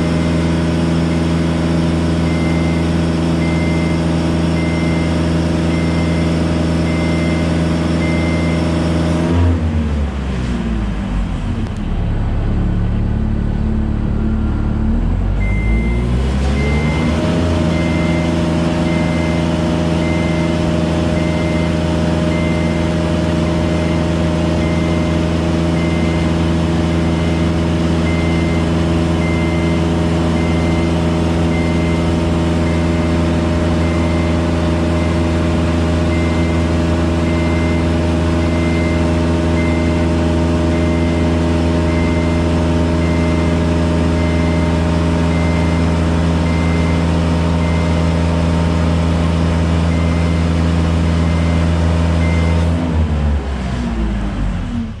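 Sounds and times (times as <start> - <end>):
boom lift engine running: 0.0 - 9.9, 10.8 - 55.0
motion alarm short beeps: 2.2 - 8.7, 15.4 - 33.2, 33.8 - 35.4, 36.0 - 48.3, 49.8 - 52.7.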